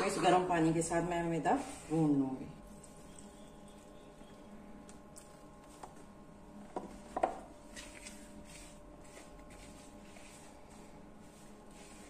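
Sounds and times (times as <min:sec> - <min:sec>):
hand mixing dough in plastic bowl: 0:06.9 - 0:12.0.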